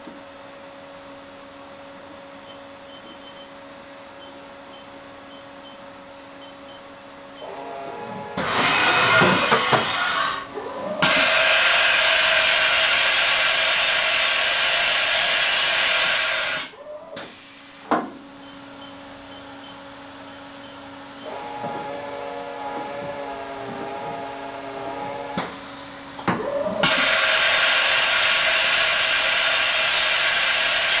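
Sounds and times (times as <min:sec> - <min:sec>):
machine whining: 0:07.4 - 0:17.5, 0:20.3 - 0:31.0
loud whirring hiss: 0:08.2 - 0:17.9, 0:21.2 - 0:31.0.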